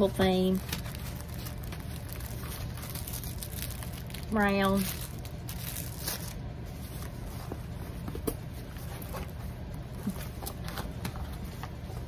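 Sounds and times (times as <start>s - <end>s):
plastic packaging crinkling: 0.0s - 6.5s.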